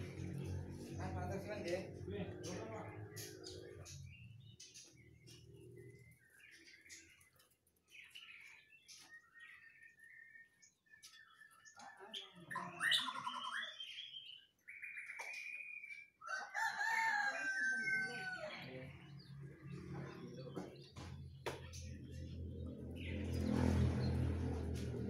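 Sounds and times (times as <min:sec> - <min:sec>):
songbird chirping and whistling: 0:08.0 - 0:16.2
rooster crowing: 0:16.2 - 0:18.8.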